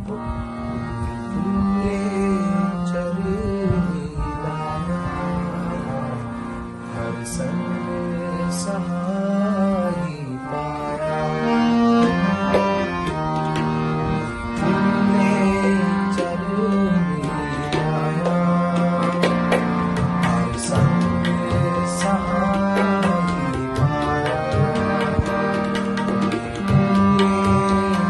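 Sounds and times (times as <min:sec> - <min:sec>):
harmonium melody: 0:00.0 - 0:28.0
tabla strokes: 0:12.0 - 0:28.0.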